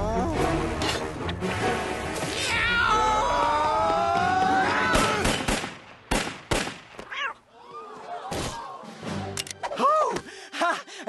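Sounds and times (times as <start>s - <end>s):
pistol shots: 5.0s - 6.9s.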